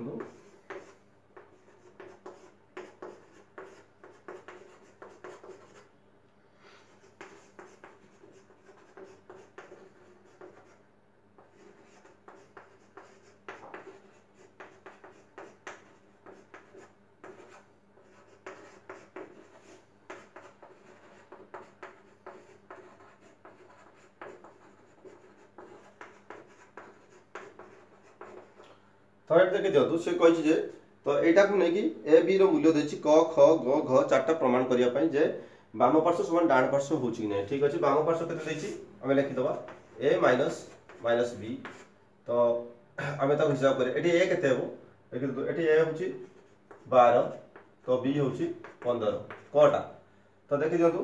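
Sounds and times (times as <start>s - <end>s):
chalk writing on chalkboard: 0.1s - 5.9s, 6.9s - 10.8s, 11.4s - 28.7s, 38.4s - 41.9s, 45.9s - 49.6s.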